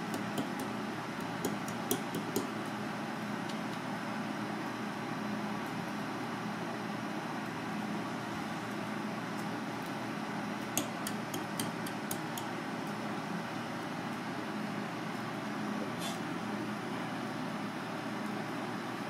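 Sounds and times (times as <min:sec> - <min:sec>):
low mechanical hum: 0:00.0 - 0:19.0
knife clicking on cutting board: 0:10.8 - 0:12.5.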